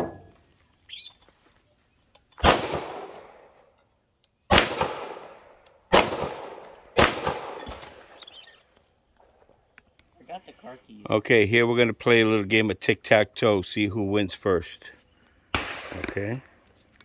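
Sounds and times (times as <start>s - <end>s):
pistol shots with echo: 2.4s - 3.5s, 4.5s - 8.1s, 15.5s - 16.3s.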